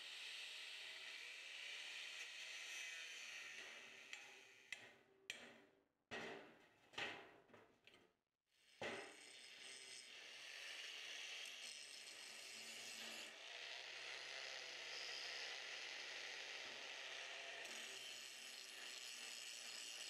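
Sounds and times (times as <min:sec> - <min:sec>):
angle grinder cutting metal: 0:00.0 - 0:04.7, 0:08.7 - 0:20.0.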